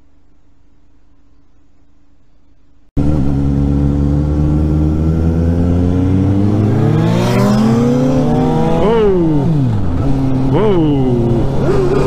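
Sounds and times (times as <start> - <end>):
motorcycle engine revving: 3.0 - 12.0.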